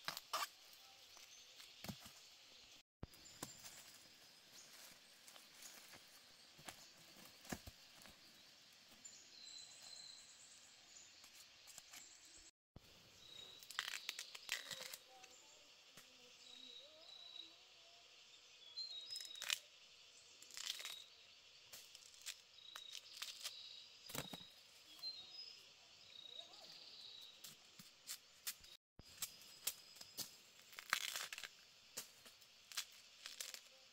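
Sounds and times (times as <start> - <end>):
faint forest ambience: 0.0 - 33.9
small bird chirping: 13.1 - 31.6
bamboo shoots being stripped: 13.4 - 15.3, 19.1 - 19.8, 20.4 - 24.4, 27.5 - 33.9.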